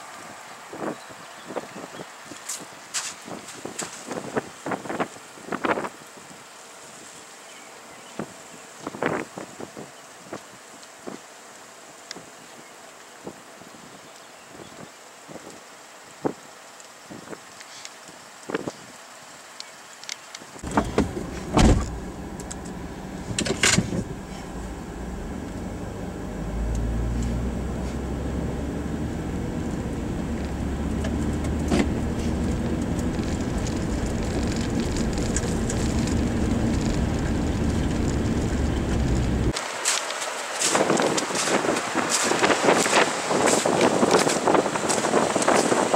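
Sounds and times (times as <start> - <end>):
tyre and engine rumble on slush: 20.6 - 45.9.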